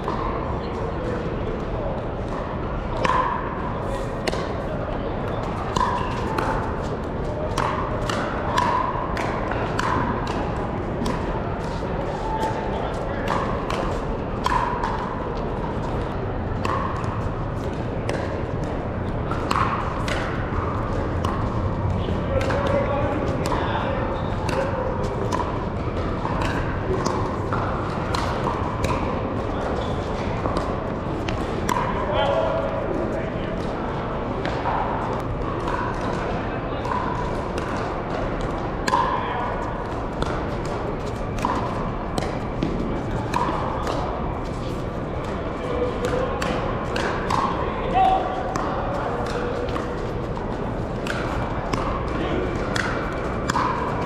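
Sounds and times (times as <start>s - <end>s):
din of large hall: 0.0s - 54.0s
voices: 0.0s - 54.0s
paddles hitting plastic ball: 5.4s - 32.0s, 39.8s - 47.6s, 48.4s - 54.0s.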